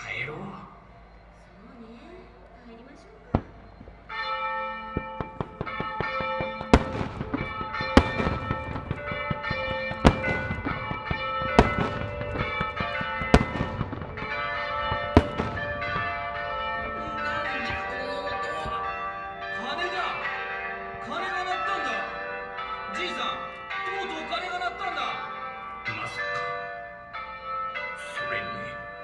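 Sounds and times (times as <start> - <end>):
church bells pealing: 0.0 - 29.0
fireworks bangs: 3.3 - 22.6.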